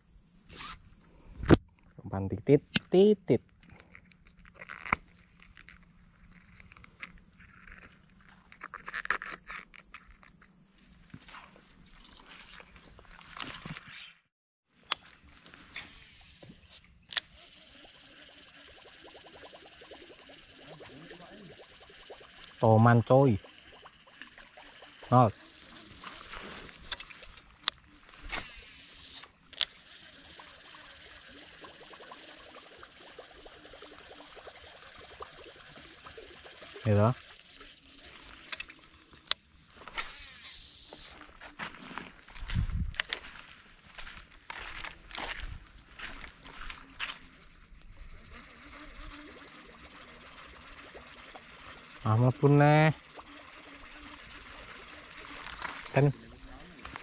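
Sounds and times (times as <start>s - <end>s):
small irregular ticks and plinks: 1.0s - 14.1s, 14.8s - 57.0s
steady high hiss: 15.2s - 42.1s
dry fronds crackling underfoot: 41.1s - 47.1s.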